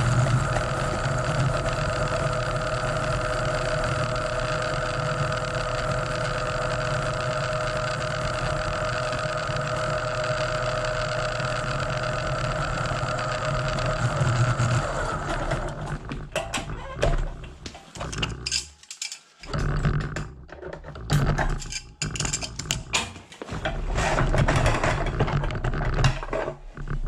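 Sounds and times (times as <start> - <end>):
drain cleaning machine motor: 0.0 - 26.9.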